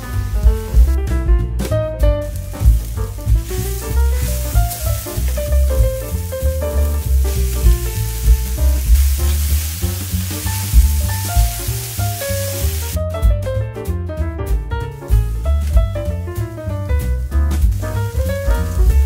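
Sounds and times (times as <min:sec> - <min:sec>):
jazzy background music: 0:00.0 - 0:19.0
vegetables sizzling in oil: 0:02.3 - 0:13.0, 0:17.6 - 0:19.0.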